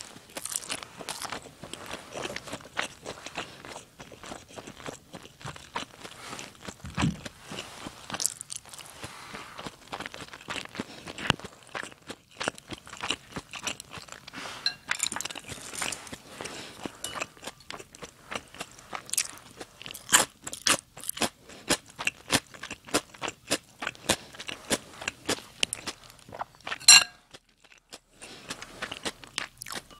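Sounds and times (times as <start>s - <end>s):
crunchy chewing: 0.0s - 29.9s
chopsticks clicking on dishes: 14.7s - 15.4s.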